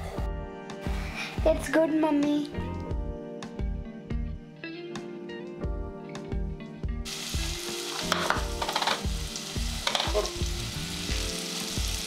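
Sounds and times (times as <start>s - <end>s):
chicken sizzling in hot oil: 7.0s - 12.0s
onion crackling in pan: 7.1s - 12.0s.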